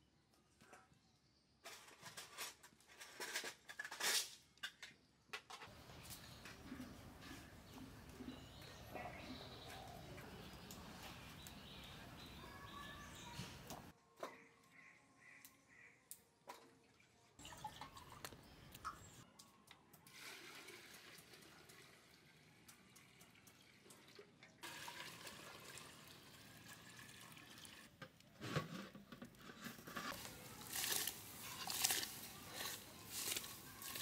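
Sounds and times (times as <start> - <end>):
water poured into metal pot: 16.9 - 18.4, 20.1 - 28.2, 30.1 - 34.0.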